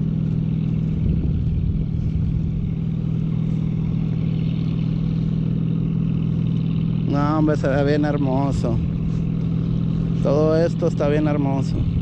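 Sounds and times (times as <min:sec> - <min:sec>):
wind buffeting microphone: 0:00.0 - 0:06.0, 0:11.6 - 0:12.0
boat engine drone: 0:00.0 - 0:12.0.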